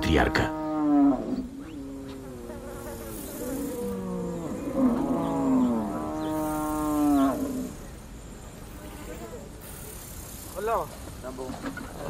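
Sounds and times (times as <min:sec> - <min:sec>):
cattle mooing: 0:00.0 - 0:07.8.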